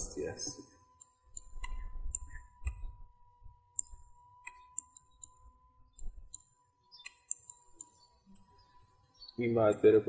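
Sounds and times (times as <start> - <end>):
computer mouse clicking: 1.0 - 2.9, 3.7 - 8.6, 9.6 - 9.9.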